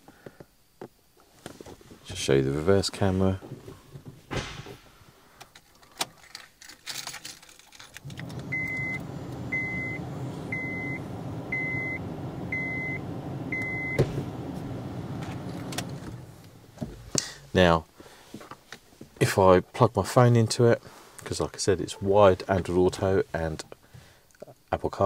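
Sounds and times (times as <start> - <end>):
car engine low hum: 8.0 - 17.2
reverse warning beeps: 8.4 - 14.2.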